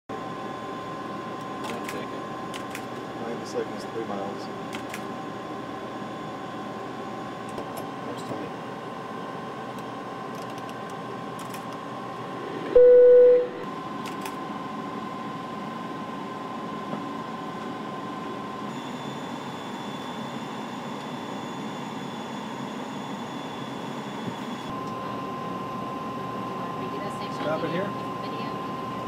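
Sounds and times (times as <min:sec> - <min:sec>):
cockpit hum and air noise: 0:00.1 - 0:29.0
cockpit alert beep: 0:12.7 - 0:13.6.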